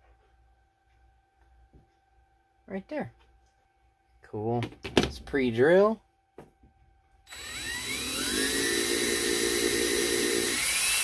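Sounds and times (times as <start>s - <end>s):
cordless drill whining: 7.3s - 11.0s.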